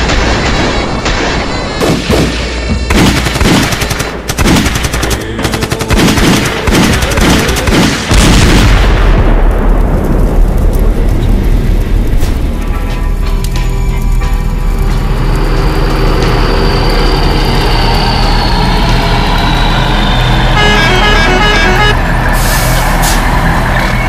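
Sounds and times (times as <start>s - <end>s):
rapid gunfire: 0.0s - 9.0s
large explosion with deep rumble: 6.0s - 12.9s.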